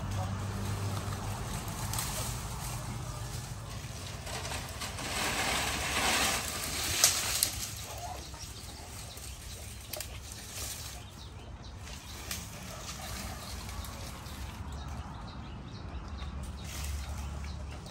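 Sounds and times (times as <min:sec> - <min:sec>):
branches snapping: 0:00.0 - 0:11.1, 0:11.8 - 0:15.0
dry branches and leaves rustling: 0:00.0 - 0:17.9.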